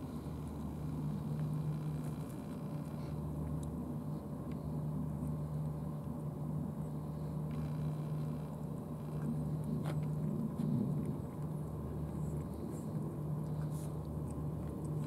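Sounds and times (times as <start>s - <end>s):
low mechanical hum: 0.0s - 15.0s
cats eating wet food: 3.0s - 15.0s.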